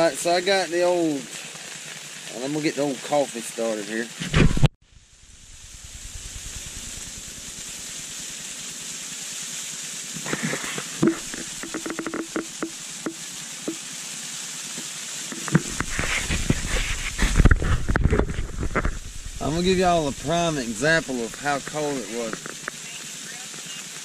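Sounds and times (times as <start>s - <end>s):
low handling rumble: 4.9s - 7.9s, 17.2s - 22.4s
gas stove burner hissing: 4.9s - 24.0s.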